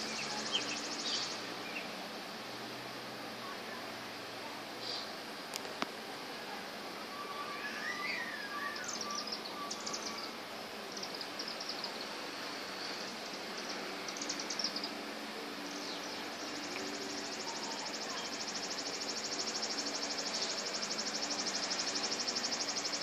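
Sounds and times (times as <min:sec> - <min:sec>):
high-pitched chittering bird calls: 0:00.0 - 0:02.0, 0:07.1 - 0:23.0
low wavering call: 0:07.1 - 0:10.3.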